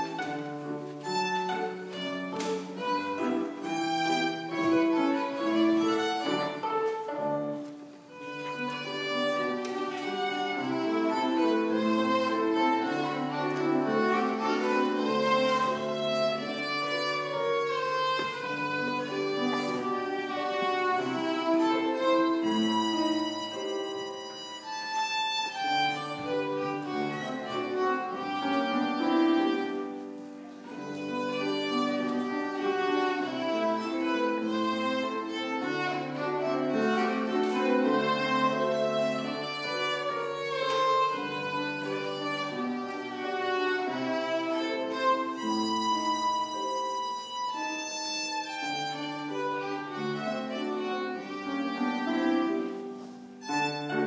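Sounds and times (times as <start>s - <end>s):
piano accompaniment: 0.0s - 54.0s
solo violin playing: 0.0s - 54.0s.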